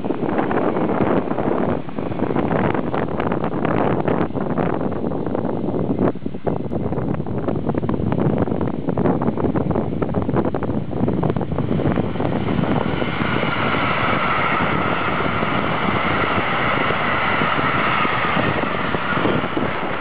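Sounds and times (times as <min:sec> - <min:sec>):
train wheels rumbling on rails: 0:00.0 - 0:20.0
locomotive hum: 0:09.9 - 0:20.0.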